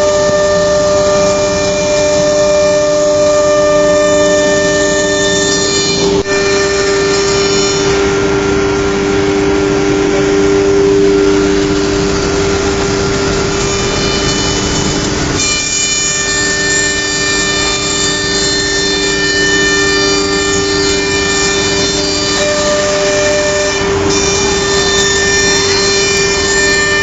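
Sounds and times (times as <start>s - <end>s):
rushing noise: 0.0s - 17.6s
router spindle whining: 0.0s - 27.0s.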